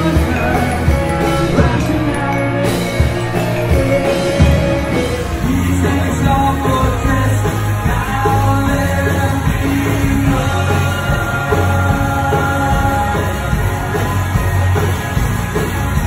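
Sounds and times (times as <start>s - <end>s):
woman singing: 0.0s - 7.4s
bass guitar: 0.0s - 16.0s
drums: 0.0s - 16.0s
electric guitars: 0.0s - 16.0s.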